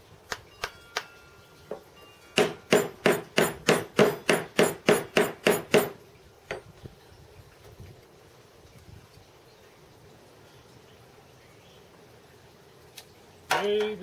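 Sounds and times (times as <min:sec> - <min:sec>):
hammer tapping metal: 0:02.4 - 0:06.6.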